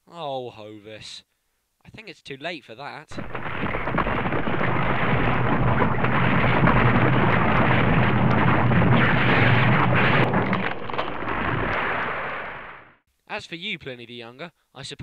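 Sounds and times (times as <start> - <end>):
crackling of falling rocks: 3.1 - 12.8
volcanic eruption rumble: 3.1 - 13.0.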